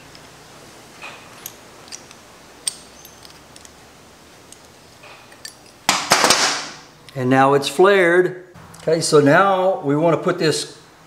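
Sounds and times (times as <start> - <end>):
metal tool clicking: 1.4 - 3.8.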